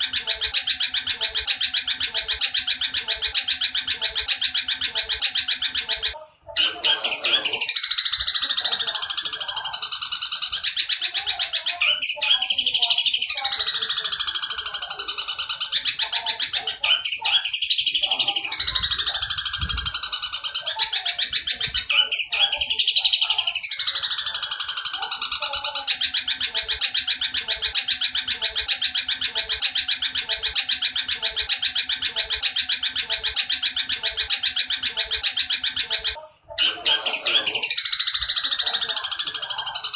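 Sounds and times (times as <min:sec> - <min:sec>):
bird harsh rapid chatter: 0:00.0 - 0:39.9.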